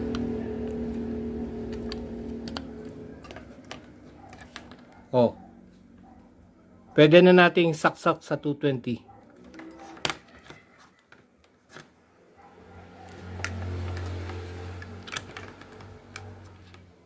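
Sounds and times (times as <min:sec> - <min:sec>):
low hum: 0:00.0 - 0:06.1.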